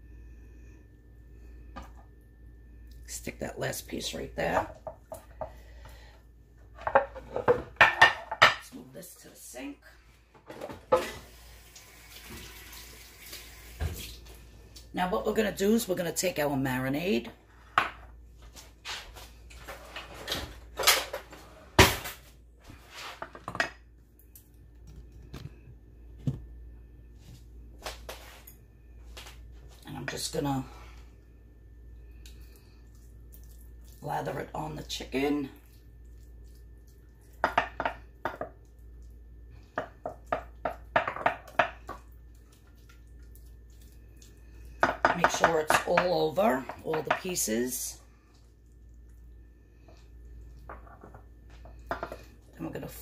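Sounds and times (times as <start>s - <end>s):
dishes clinking on countertop: 6.8s - 8.6s, 51.9s - 52.3s.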